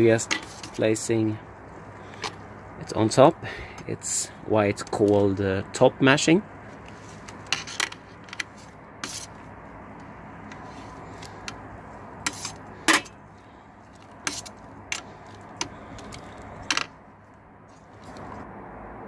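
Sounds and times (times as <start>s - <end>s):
metal spoon scraping steel pot: 0.2s - 0.8s, 7.4s - 9.4s, 12.2s - 13.2s, 14.2s - 16.9s.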